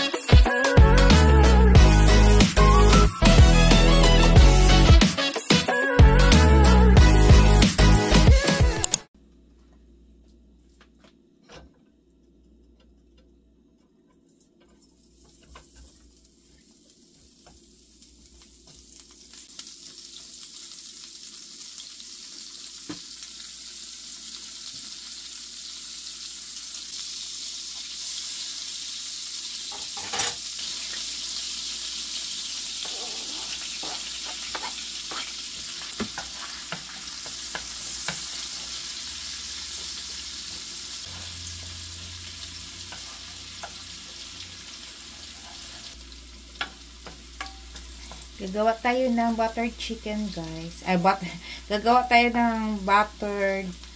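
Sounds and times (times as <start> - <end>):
butter sizzling in a frying pan: 14.7 - 53.9
wooden spatula scraping a pan: 32.8 - 38.8, 42.8 - 44.2, 44.9 - 46.0.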